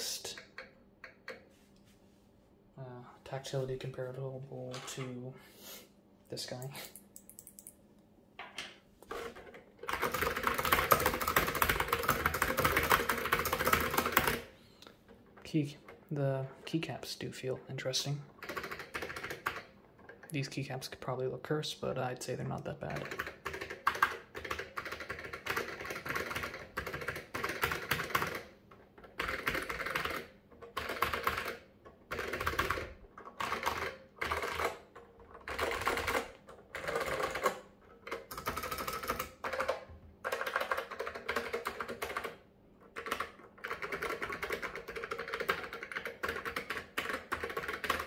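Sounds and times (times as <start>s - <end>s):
clicky keyboard typing: 18.4s - 19.7s, 22.9s - 48.0s.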